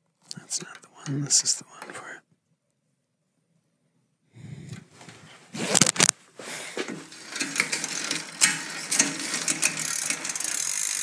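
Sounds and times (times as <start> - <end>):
bicycle chain running over cogs: 7.0 - 11.0
hub ratchet clicking rapidly: 7.1 - 11.0.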